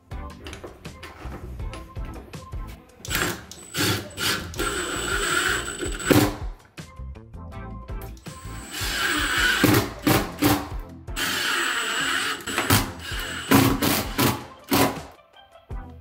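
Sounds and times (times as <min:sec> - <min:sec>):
background music with a beat: 0:00.0 - 0:16.0
impact driver driving screws: 0:03.1 - 0:06.5, 0:08.2 - 0:15.1.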